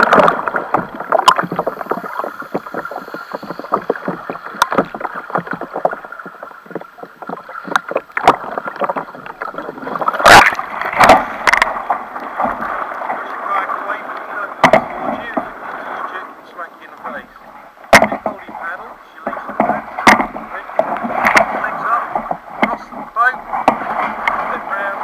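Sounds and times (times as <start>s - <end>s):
muffled water gurgling: 0.0s - 25.0s
water lapping against hull: 0.0s - 25.0s
loud splashes: 8.2s - 16.3s, 17.8s - 25.0s.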